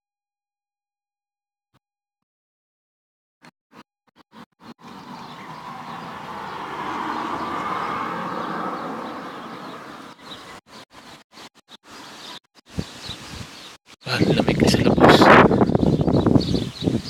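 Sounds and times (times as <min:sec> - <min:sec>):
vehicle passing: 0:04.8 - 0:10.6.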